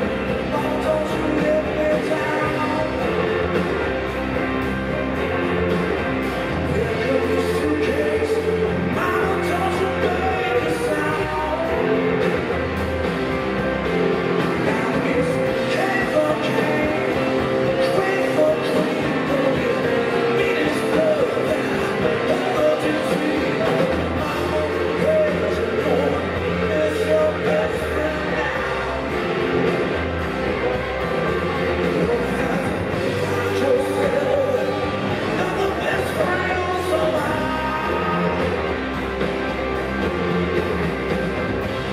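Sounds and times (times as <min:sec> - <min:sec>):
man singing: 0:00.0 - 0:03.7, 0:06.5 - 0:12.5, 0:14.3 - 0:29.2, 0:31.8 - 0:38.8
blues-rock band playing: 0:00.0 - 0:41.9.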